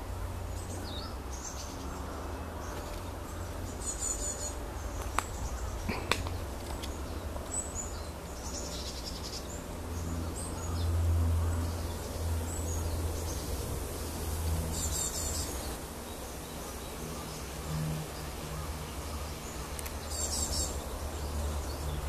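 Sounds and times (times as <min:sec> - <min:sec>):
small birds chirping: 0:00.0 - 0:22.0.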